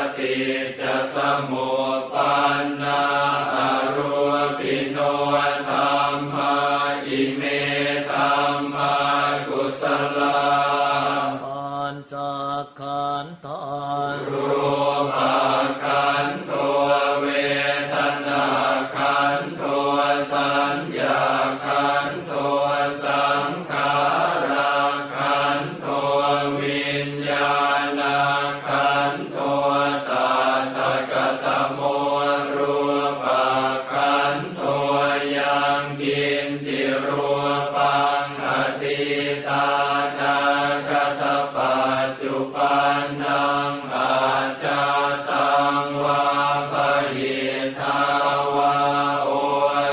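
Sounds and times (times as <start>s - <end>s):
monks chanting together: 0.0s - 49.9s.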